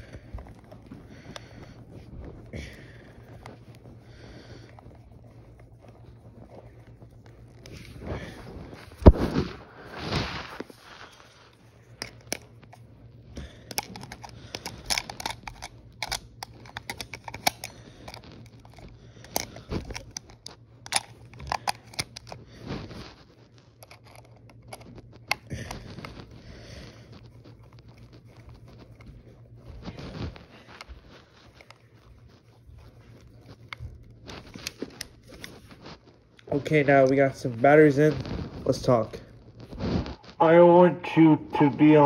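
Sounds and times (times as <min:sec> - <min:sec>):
faint low hum: 0:00.0 - 0:42.0
hand rubbing microphone: 0:00.0 - 0:42.0
batteries clicking against plastic: 0:13.6 - 0:22.8, 0:23.7 - 0:26.2.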